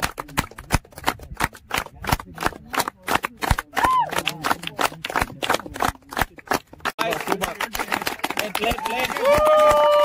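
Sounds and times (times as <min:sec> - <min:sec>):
people clapping: 0:00.0 - 0:10.0.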